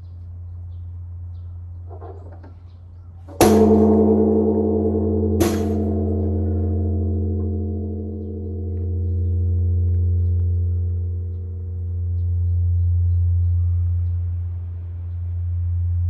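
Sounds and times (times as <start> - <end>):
wooden log striking bell: 3.3 - 13.6
bronze bell ringing with deep hum: 3.3 - 16.0.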